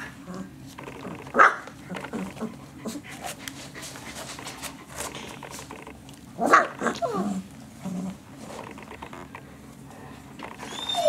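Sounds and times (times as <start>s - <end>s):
puppy grunts: 0.0s - 3.3s
puppy yelping and crying: 10.6s - 11.0s.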